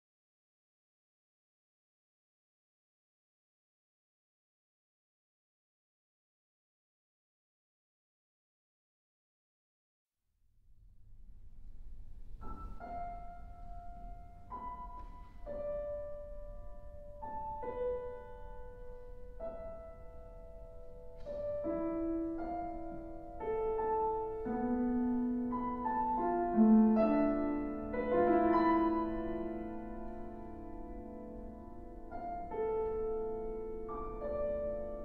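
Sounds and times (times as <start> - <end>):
slow solo piano piece: 11.8 - 35.0.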